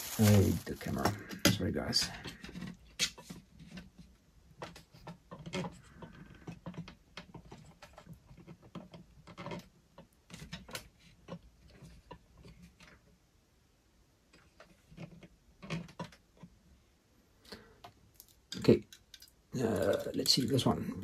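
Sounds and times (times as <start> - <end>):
plastic packaging clicks and rustles: 0.0 - 3.9.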